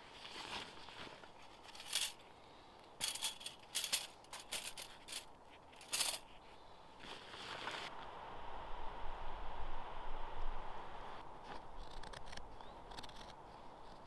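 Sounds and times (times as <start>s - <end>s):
thin bag rustling: 0.0s - 2.2s.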